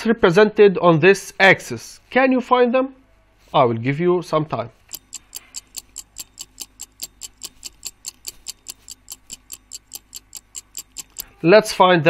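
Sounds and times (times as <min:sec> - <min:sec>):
clock ticking rapidly: 0:04.8 - 0:11.4.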